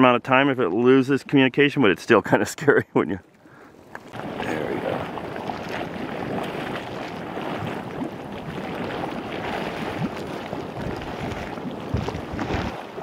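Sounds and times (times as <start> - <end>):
mud bubbling and gurgling: 3.9 - 13.0.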